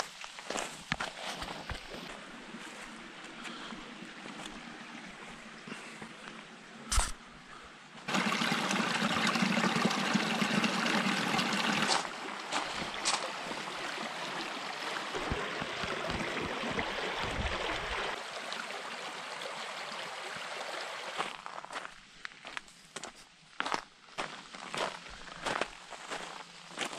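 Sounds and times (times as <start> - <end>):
creek water rushing over rocks: 8.0 - 21.4.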